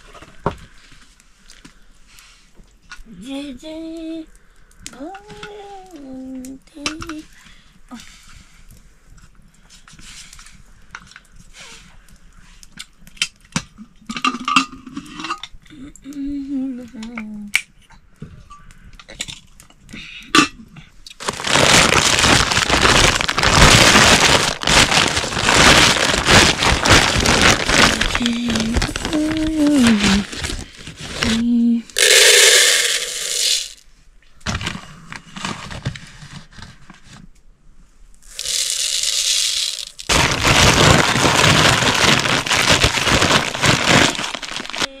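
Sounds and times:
loud continuous noise: 21.2s - 33.8s.

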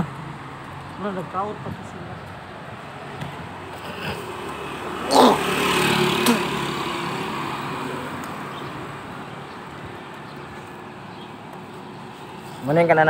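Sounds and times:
motor vehicle passing: 0.0s - 13.0s.

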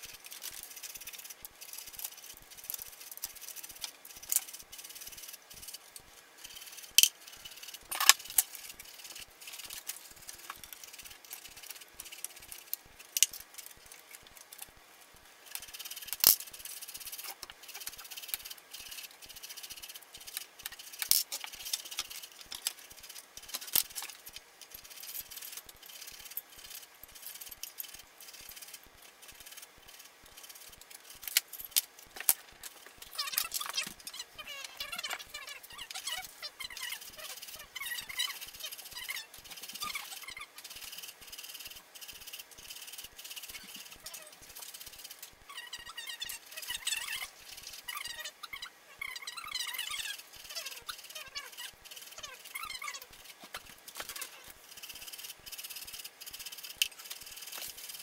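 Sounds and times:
metal and plastic parts clicking: 0.0s - 14.7s, 15.5s - 16.5s, 20.2s - 28.8s.

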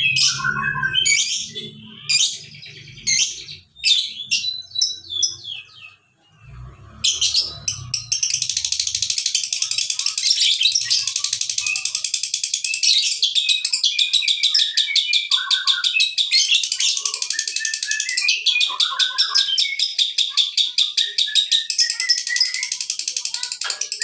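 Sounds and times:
lovebird chattering song: 7.0s - 24.0s.

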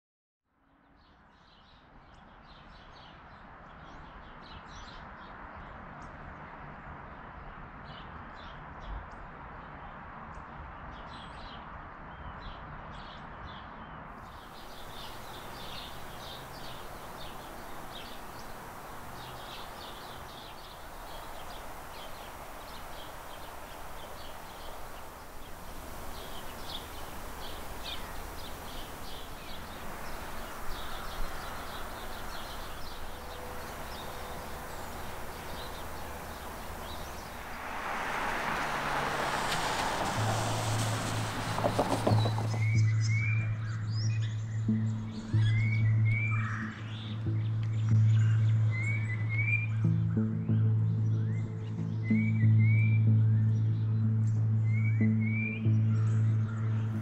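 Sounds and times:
small birds chirping: 14.2s - 57.0s
steady background rush: 14.6s - 39.5s.

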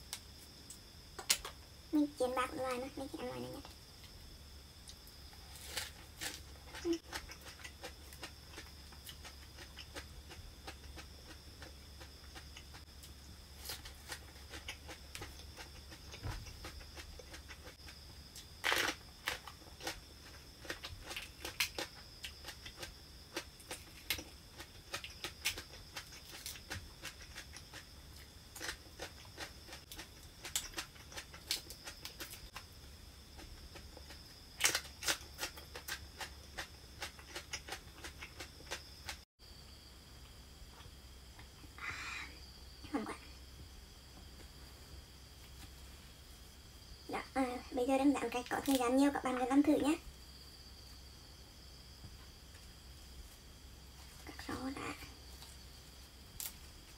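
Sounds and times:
crunchy chewing: 3.6s - 39.3s, 51.0s - 56.9s.

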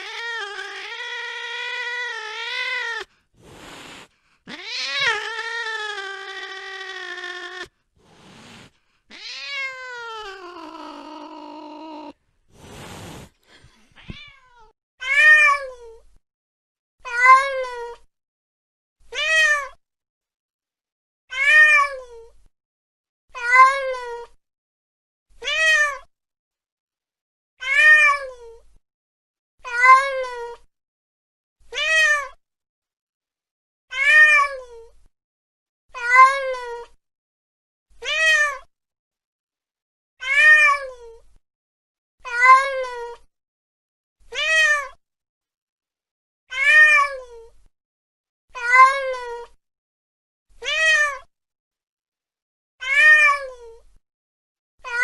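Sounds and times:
cat meowing: 0.0s - 3.1s, 4.5s - 7.7s, 9.1s - 12.2s, 14.0s - 15.7s, 21.3s - 22.0s, 33.9s - 34.7s, 40.2s - 41.0s, 44.3s - 45.0s, 46.5s - 47.3s, 48.6s - 49.6s, 50.6s - 51.3s, 52.8s - 53.6s.

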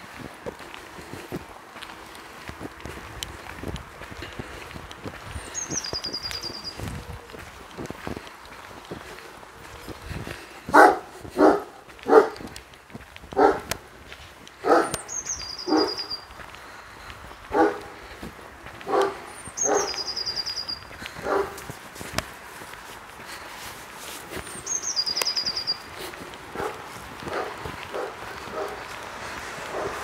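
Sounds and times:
dog barking: 10.7s - 12.5s, 13.4s - 13.7s, 14.6s - 15.0s, 15.6s - 16.1s, 17.5s - 18.0s, 18.8s - 20.0s, 21.2s - 21.7s, 26.5s - 28.9s, 29.7s - 30.0s.

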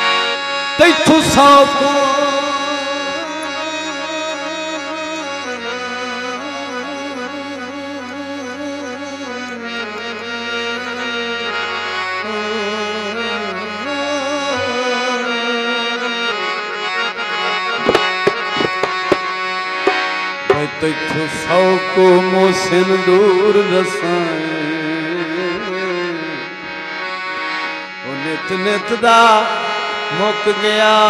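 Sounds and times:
free-reed keyboard folk melody: 0.0s - 31.0s
drum strokes: 17.8s - 20.6s.

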